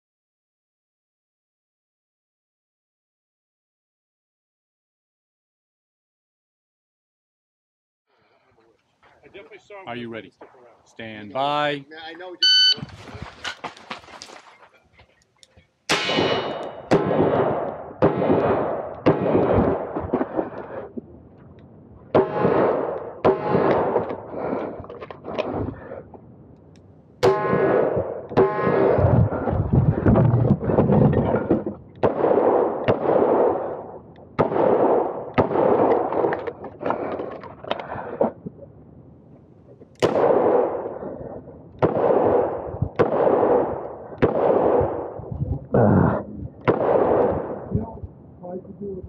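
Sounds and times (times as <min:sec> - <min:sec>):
rustling movement: 0:12.7 - 0:15.7.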